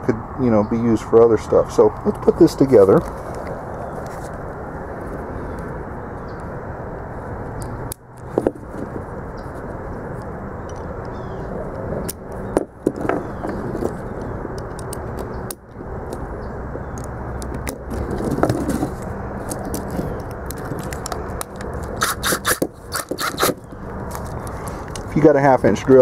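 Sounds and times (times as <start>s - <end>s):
steady low rumble: 0.0s - 22.0s
metal tool pieces clicking and scraping: 19.4s - 25.1s.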